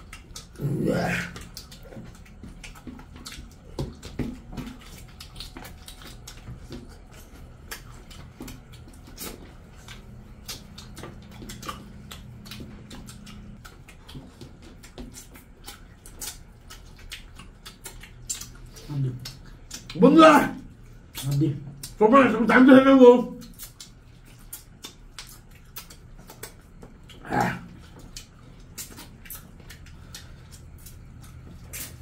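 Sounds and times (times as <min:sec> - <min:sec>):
wet chewing and lip-smacking: 0:00.0 - 0:32.0.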